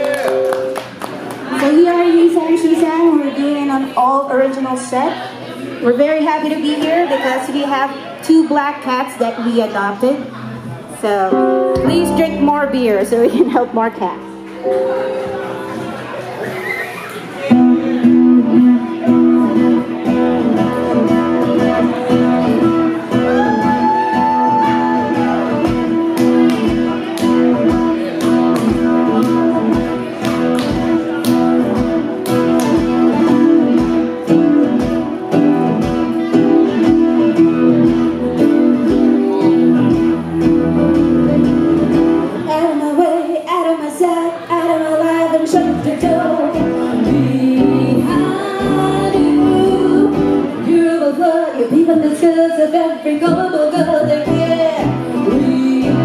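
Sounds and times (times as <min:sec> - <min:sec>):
acoustic guitar strumming: 0:11.3 - 0:42.5.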